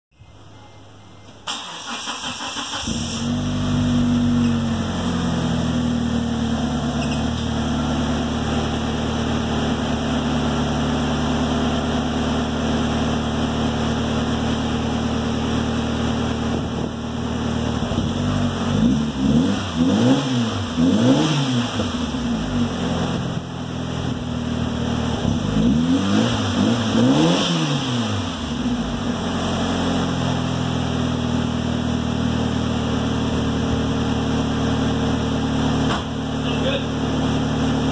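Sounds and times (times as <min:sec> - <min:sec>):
car engine idling and revving: 0:00.3 - 0:37.9.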